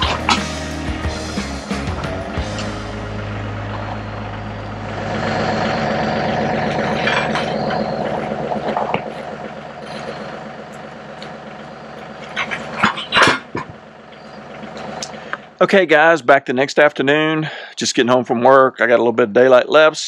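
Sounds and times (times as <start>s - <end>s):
loud metal clanks: 0.0s - 15.4s
tractor engine running: 0.0s - 19.9s.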